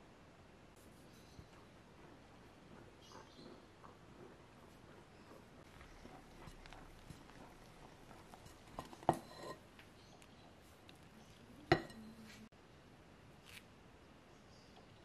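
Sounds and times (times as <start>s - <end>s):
spatula scraping glass bowl: 5.7s - 9.7s
spatula knocking against glass: 5.8s - 9.6s, 11.7s - 12.0s.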